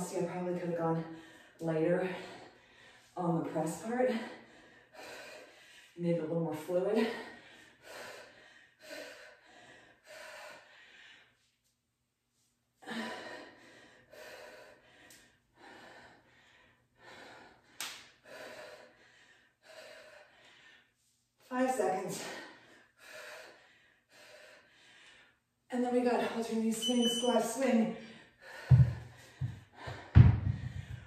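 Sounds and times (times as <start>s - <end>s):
woman breathing hard: 1.0s - 3.2s, 4.1s - 6.0s, 7.0s - 11.6s, 12.4s - 21.3s, 22.2s - 25.5s, 28.0s - 31.0s.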